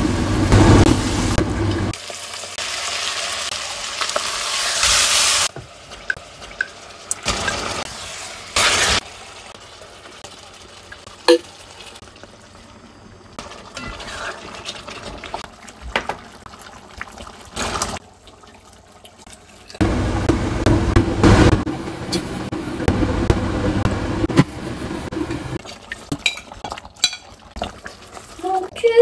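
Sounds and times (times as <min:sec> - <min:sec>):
meat frying and bubbling: 0:00.0 - 0:29.0
spatula scraping a pot: 0:13.8 - 0:15.2.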